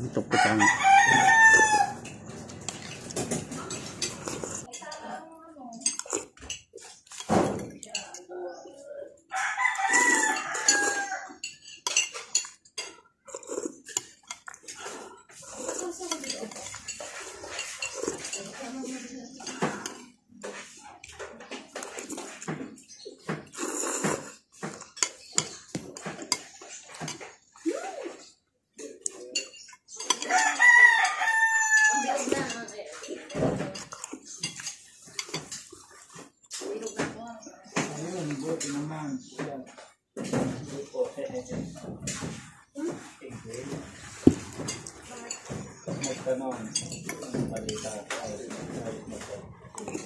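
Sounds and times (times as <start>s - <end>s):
rooster crowing: 0.3s - 2.0s, 9.3s - 11.4s, 30.2s - 32.2s
spoon clinking ceramic bowl: 10.2s - 13.0s, 44.3s - 48.2s.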